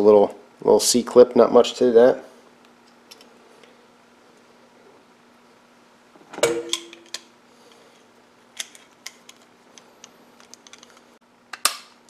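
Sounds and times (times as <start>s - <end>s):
metal tool clanking: 6.3s - 7.2s.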